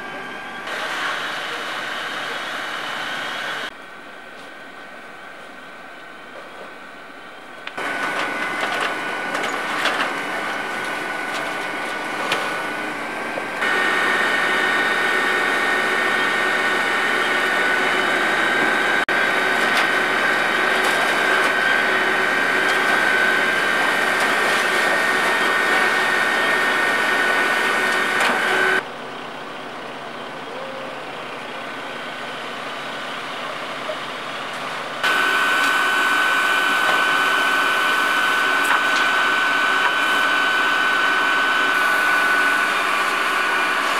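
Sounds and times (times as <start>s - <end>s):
fire engine pump running: 0.0s - 43.9s.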